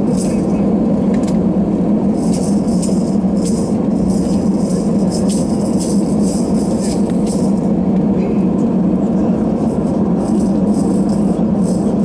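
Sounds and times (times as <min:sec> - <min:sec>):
jet engines droning: 0:00.0 - 0:12.0
jingling rattles in cabin: 0:02.1 - 0:07.8.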